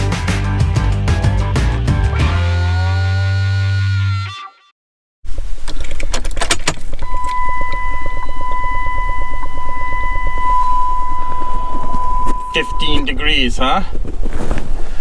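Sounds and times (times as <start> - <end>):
high electronic warning tone: 7.0 - 13.3.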